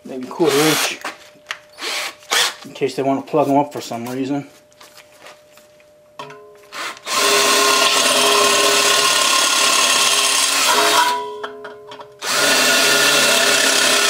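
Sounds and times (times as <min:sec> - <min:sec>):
electric drill whining through metal: 0:00.4 - 0:01.1, 0:01.7 - 0:02.6, 0:06.7 - 0:11.2, 0:12.2 - 0:14.0.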